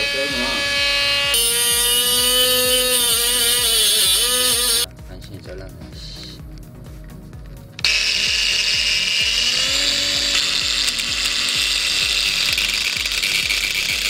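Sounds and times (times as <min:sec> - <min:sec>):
angle grinder whining: 0:00.0 - 0:04.9, 0:07.8 - 0:14.0.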